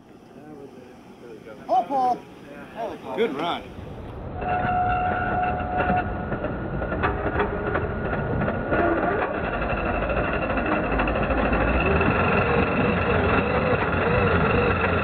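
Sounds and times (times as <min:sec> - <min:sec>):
electric motor whining: 0:08.8 - 0:15.0.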